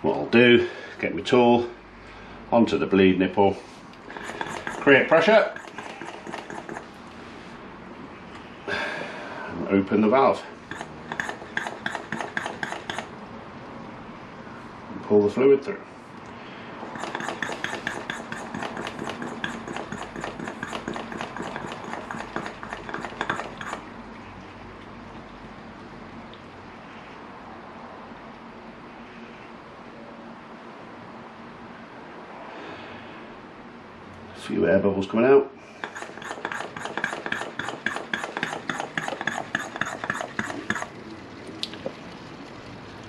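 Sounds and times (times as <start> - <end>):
hand pump clicking: 4.2 - 6.9, 10.7 - 13.1, 16.9 - 23.8, 35.8 - 40.9.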